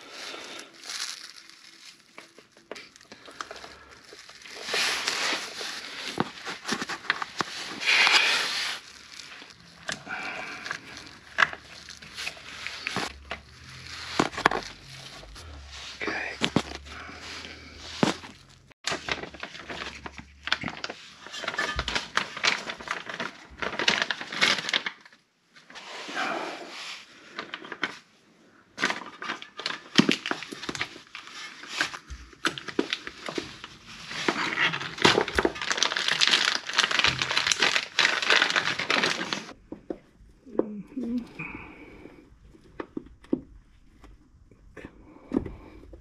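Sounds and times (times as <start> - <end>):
rubber crinkling and rubbing: 0.0 - 25.0, 28.9 - 41.3.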